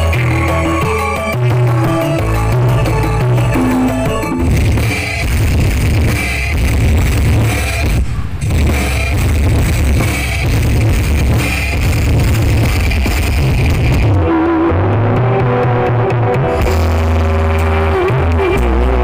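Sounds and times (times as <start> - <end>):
drum beat: 0.0 - 7.5
loud bass-heavy music: 0.0 - 19.0.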